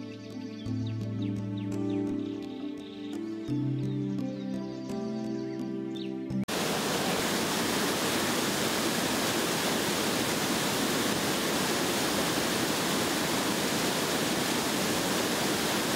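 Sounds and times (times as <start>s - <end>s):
water rushing over rocks: 6.5s - 15.9s.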